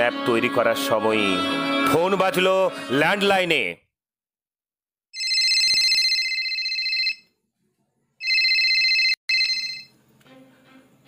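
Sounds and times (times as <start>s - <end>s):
telephone ringing: 5.2s - 7.3s, 8.2s - 10.0s.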